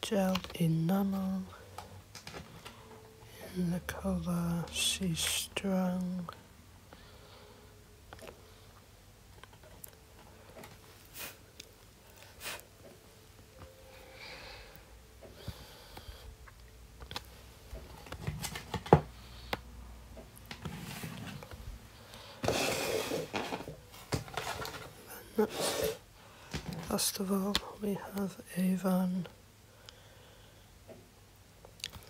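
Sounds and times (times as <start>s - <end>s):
cardboard rustling: 22.4s - 25.7s.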